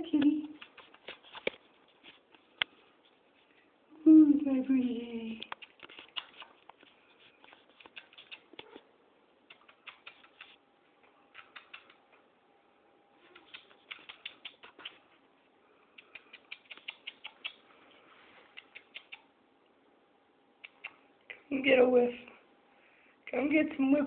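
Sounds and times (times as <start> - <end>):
cat claws scratching: 0.4 - 2.3, 5.5 - 8.8.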